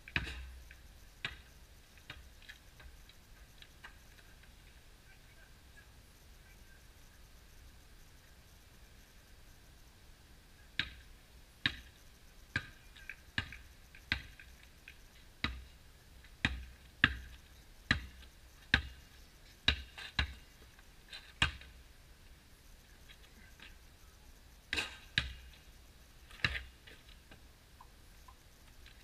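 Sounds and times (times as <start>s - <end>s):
basketball bouncing on asphalt: 0.1s - 4.0s, 10.8s - 11.0s, 11.6s - 15.7s, 16.4s - 19.0s, 19.7s - 20.5s, 21.2s - 21.8s, 24.7s - 25.6s, 26.2s - 28.4s.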